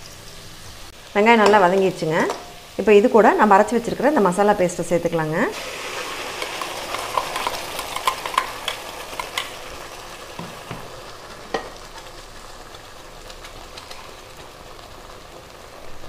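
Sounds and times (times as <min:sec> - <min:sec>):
onions sizzling in oil: 0:00.0 - 0:16.0
paste poured into pan: 0:05.6 - 0:12.1.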